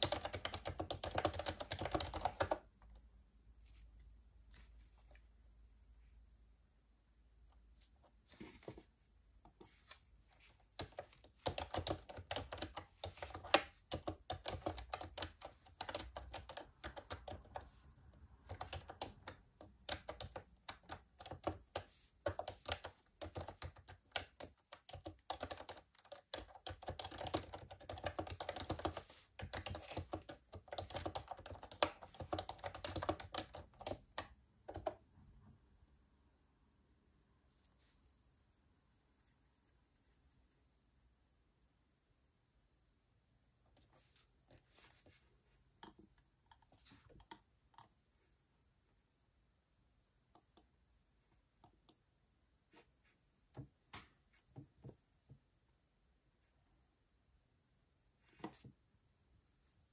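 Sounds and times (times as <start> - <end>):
typing on a keyboard: 0.0 - 2.7, 10.7 - 17.8, 18.4 - 35.0.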